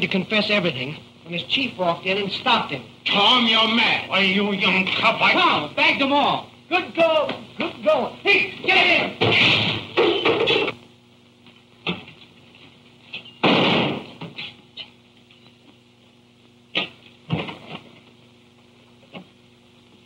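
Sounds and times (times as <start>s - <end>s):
film soundtrack hum: 0.0s - 20.0s
thuds against furniture: 13.4s - 14.4s.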